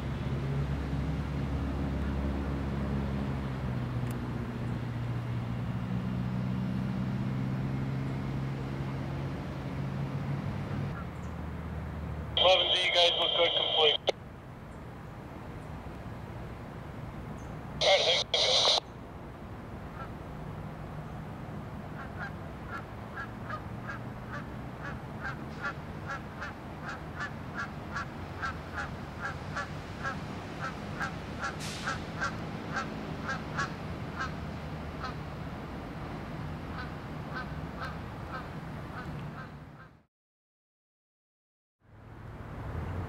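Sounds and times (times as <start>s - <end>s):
locomotive engines rumbling: 12.4s - 14.1s, 17.8s - 18.8s.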